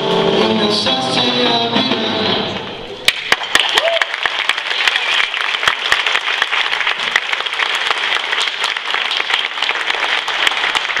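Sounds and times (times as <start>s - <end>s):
small audience applauding: 3.0s - 11.0s.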